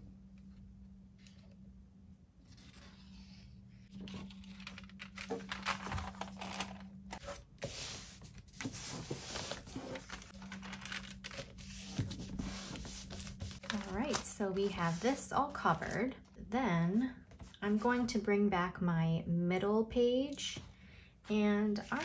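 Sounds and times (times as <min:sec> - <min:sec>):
paper rustling and crinkling: 0:02.5 - 0:15.9, 0:21.8 - 0:22.0.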